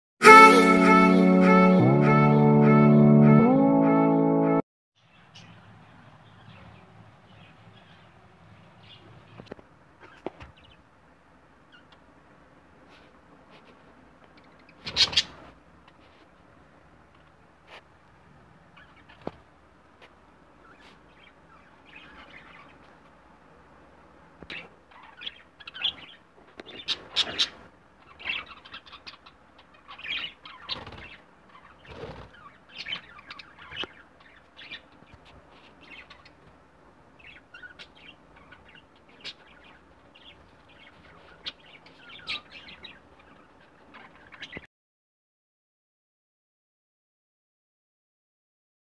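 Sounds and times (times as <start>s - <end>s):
budgerigars chirping and chattering: 14.4s - 15.5s, 18.8s - 19.4s, 20.6s - 22.9s, 24.4s - 36.4s, 37.2s - 44.6s
flutter of wings: 31.8s - 32.4s.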